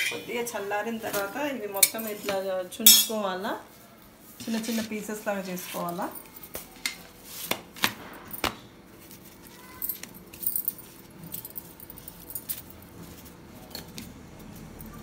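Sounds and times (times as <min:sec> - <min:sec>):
bangles jingling: 0:09.8 - 0:13.0.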